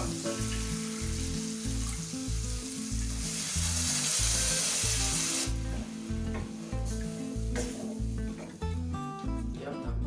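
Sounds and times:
gravy sizzling in a pan: 0:00.0 - 0:09.0
light background music: 0:00.0 - 0:10.0.

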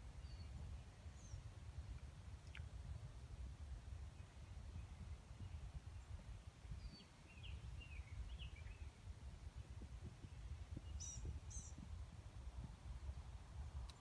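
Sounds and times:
songbird chirps: 0:04.0 - 0:09.2, 0:10.0 - 0:11.9.

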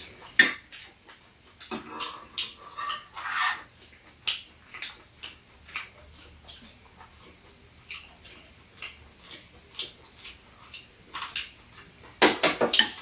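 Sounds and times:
chewing clicks and smacks: 0:03.8 - 0:12.2.

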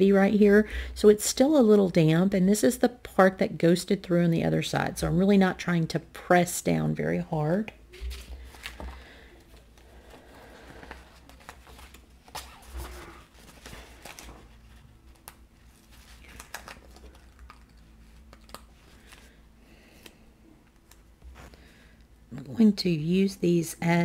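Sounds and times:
paper sheets rustling: 0:07.9 - 0:17.3.

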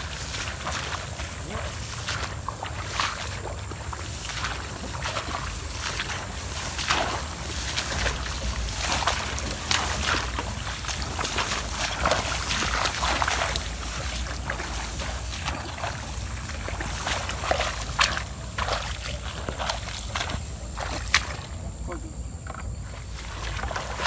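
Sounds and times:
grass swishing: 0:00.0 - 0:21.4
splashing in shallow water: 0:00.0 - 0:24.0
wading steps: 0:00.0 - 0:24.0.

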